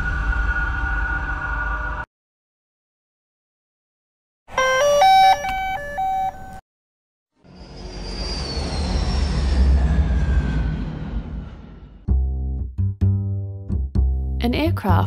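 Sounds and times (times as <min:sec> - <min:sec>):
whoosh with low rumble: 0:07.5 - 0:12.6.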